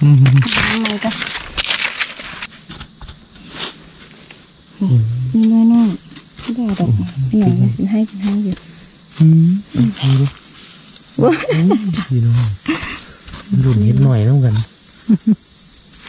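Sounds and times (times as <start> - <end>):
person speaking: 0.0 - 2.4, 4.8 - 10.5, 11.2 - 14.7
high-pitched insect drone: 0.0 - 16.0.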